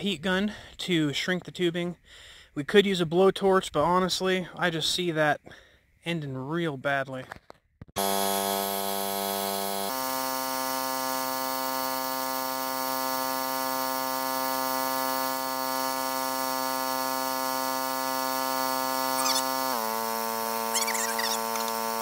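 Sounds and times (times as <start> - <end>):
generator droning: 8.0 - 22.0
heat gun blowing: 8.0 - 22.0.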